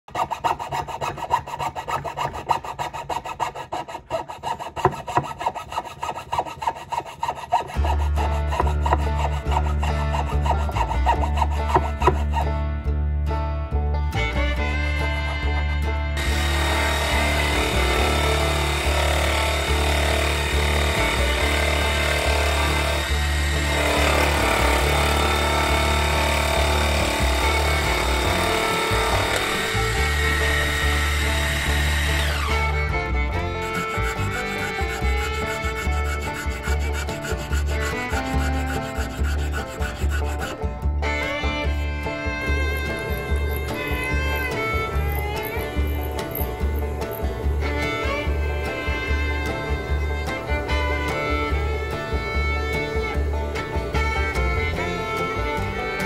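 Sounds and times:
saw rasping through wood: 0.0 - 12.6, 14.6 - 56.0
bit cutting into wood: 0.1 - 12.4, 16.2 - 56.0
background music with low bass: 7.8 - 56.0
rotary tool motor running: 16.2 - 32.6, 33.4 - 40.5, 42.5 - 51.2.

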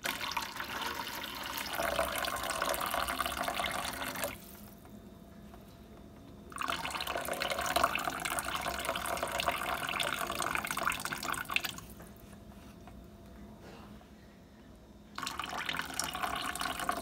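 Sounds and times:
hot water pouring into sink: 0.0 - 4.6, 6.6 - 11.8, 15.2 - 17.0.

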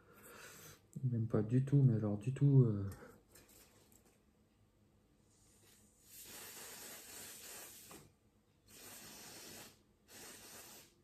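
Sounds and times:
aerosol can spraying: 6.0 - 8.1, 8.7 - 11.0.

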